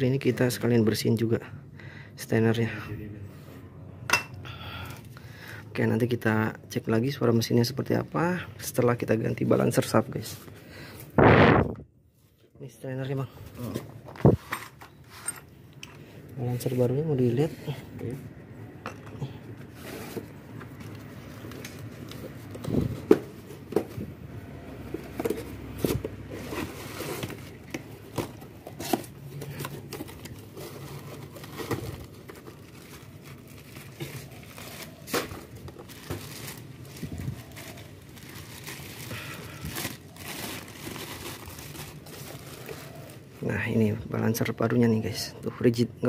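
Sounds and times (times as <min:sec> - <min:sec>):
plastic bag and cardboard crinkling: 0:13.1 - 0:15.4, 0:19.3 - 0:44.0.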